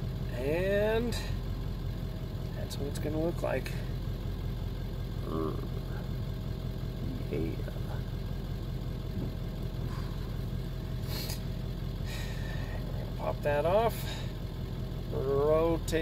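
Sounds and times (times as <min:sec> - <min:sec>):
vehicle engine idling: 0:00.0 - 0:16.0.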